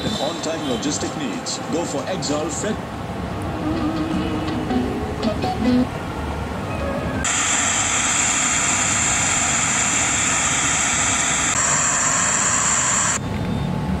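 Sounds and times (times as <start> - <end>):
radio static hiss: 7.3 - 13.2.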